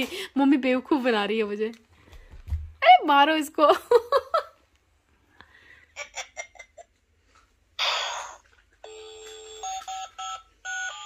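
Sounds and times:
toy phone short beeps: 8.8s - 11.0s.

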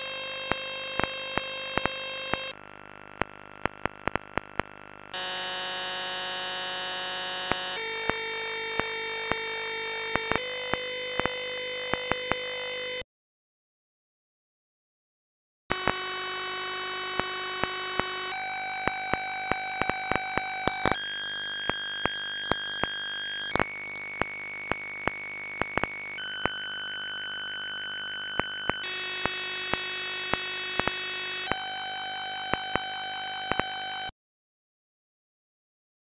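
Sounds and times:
buzzy square-wave beeper tone: 0.0s - 13.0s, 15.7s - 34.1s
clicks: 0.5s - 2.5s, 3.2s - 4.7s, 10.2s - 10.4s, 17.2s - 21.0s, 21.7s - 26.6s, 28.3s - 31.7s, 32.4s - 33.9s.

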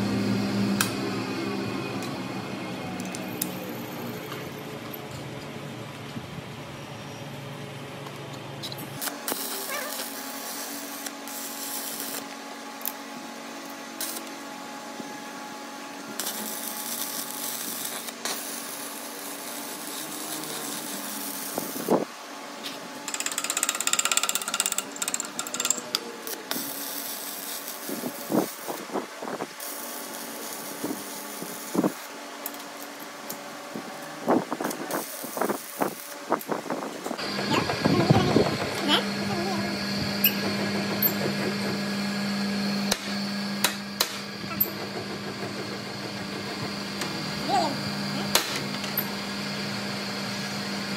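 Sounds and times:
steady electrical hum: 0.0s - 40.4s
arc welder crackling and hissing: 2.8s - 4.5s, 7.3s - 40.4s, 41.2s - 50.8s.

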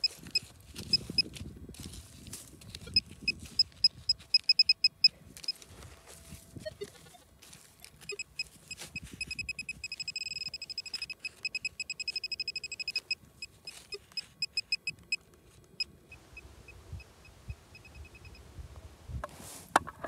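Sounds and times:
metal detector pinpointer beeping: 0.0s - 1.4s, 2.7s - 5.6s, 7.8s - 15.2s, 17.7s - 18.4s.

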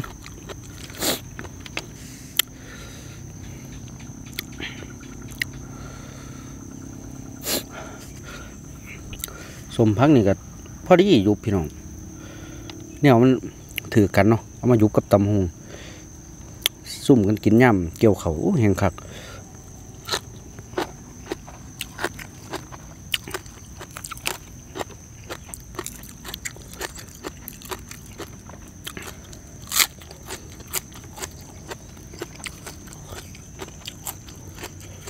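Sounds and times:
person chewing crunchy food: 0.0s - 6.1s, 7.5s - 9.6s, 19.4s - 35.0s.

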